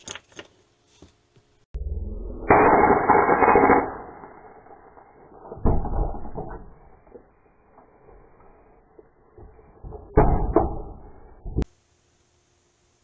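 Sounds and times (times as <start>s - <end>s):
spot welder rasping blast: 2.3s - 11.3s
sharp bang: 2.4s - 7.2s.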